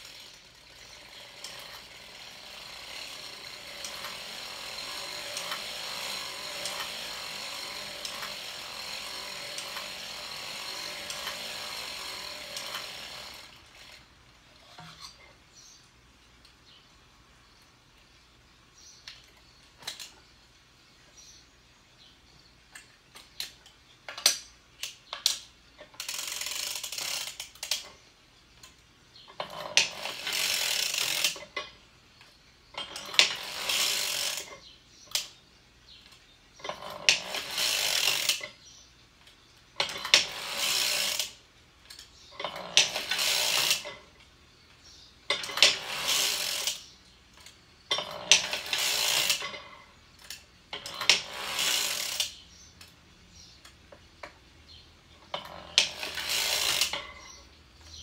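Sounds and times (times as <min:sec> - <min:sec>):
sharp mechanical clicks: 0:00.0 - 0:14.0, 0:22.7 - 0:28.0, 0:28.6 - 0:35.4, 0:36.1 - 0:38.6, 0:45.3 - 0:53.0, 0:55.2 - 0:58.0
sock machine needles clattering: 0:00.0 - 0:14.0, 0:29.3 - 0:31.8, 0:36.6 - 0:38.6, 0:39.8 - 0:41.4, 0:42.0 - 0:44.2, 0:45.3 - 0:46.8, 0:47.4 - 0:52.4, 0:55.2 - 0:58.0.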